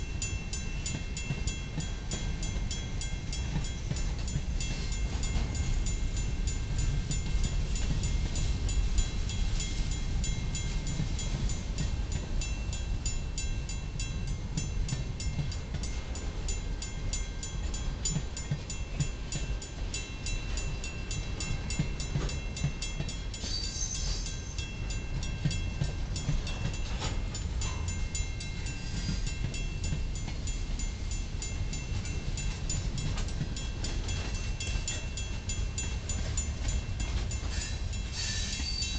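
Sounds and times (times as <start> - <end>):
train wheels rumbling on rail: 0.0 - 38.9
high-pitched wheel squeal: 23.4 - 24.6, 37.5 - 38.9.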